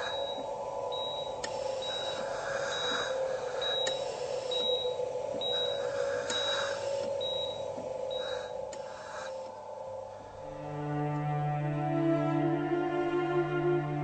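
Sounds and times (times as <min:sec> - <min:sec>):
patient monitor beeping: 0:00.0 - 0:10.2
steady low drone: 0:00.0 - 0:14.0.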